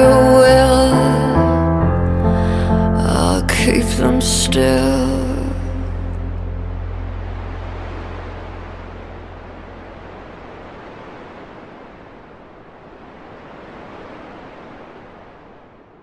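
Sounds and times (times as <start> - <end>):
low bass note: 0.0 - 10.8
steady wash of noise: 4.9 - 16.0.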